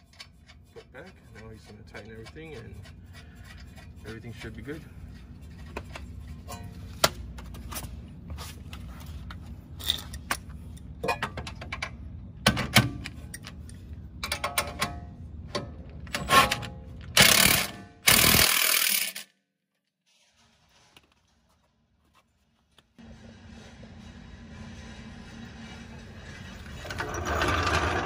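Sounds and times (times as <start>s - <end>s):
impact wrench hammering: 17.2s - 19.2s.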